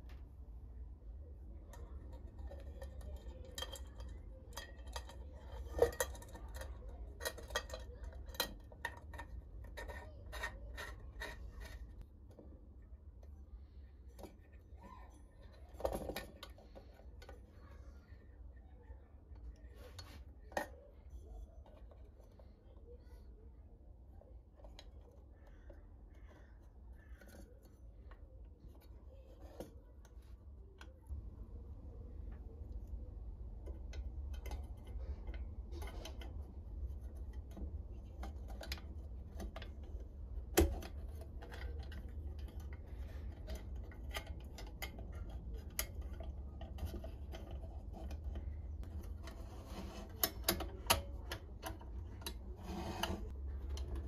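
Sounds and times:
small metal clicks and taps: 1.7s - 12.4s, 32.3s - 54.0s.

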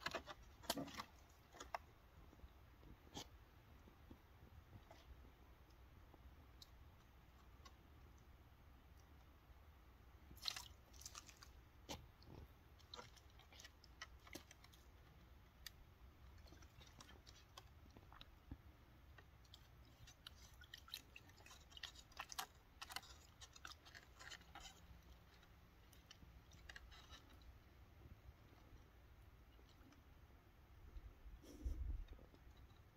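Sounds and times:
cat crunching ice: 0.0s - 3.4s, 10.3s - 30.2s.

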